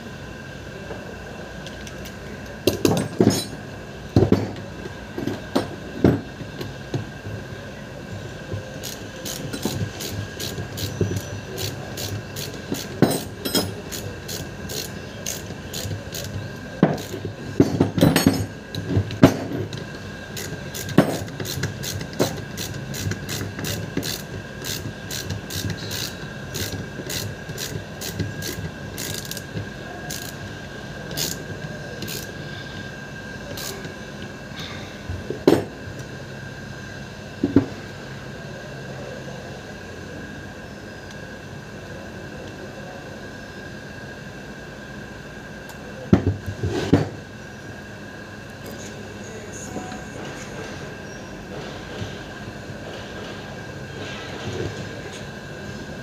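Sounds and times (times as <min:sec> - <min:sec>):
ratchet wrench clicking: 0:08.8 - 0:17.2, 0:20.3 - 0:29.5, 0:30.1 - 0:30.5, 0:31.1 - 0:31.4, 0:32.0 - 0:32.4, 0:33.5 - 0:33.9.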